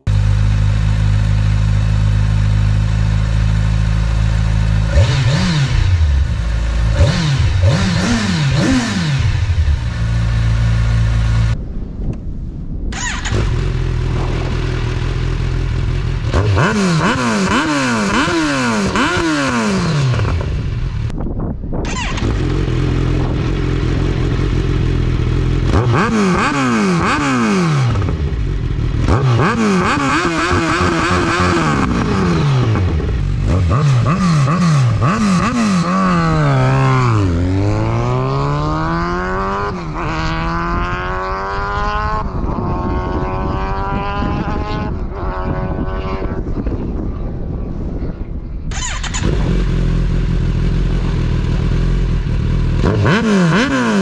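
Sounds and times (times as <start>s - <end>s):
motorcycle engine revving: 0.0s - 11.6s, 12.9s - 21.2s, 21.8s - 47.0s, 48.7s - 54.0s.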